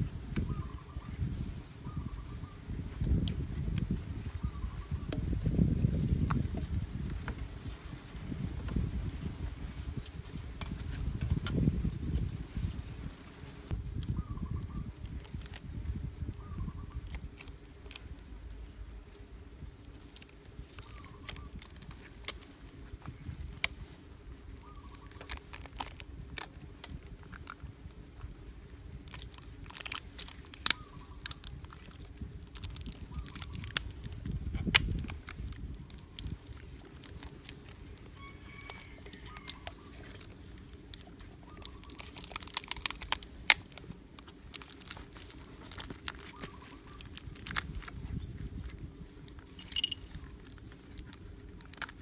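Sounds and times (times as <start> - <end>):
packing tape crackling off roll: 15.0 - 15.7, 17.0 - 18.7, 19.8 - 52.0.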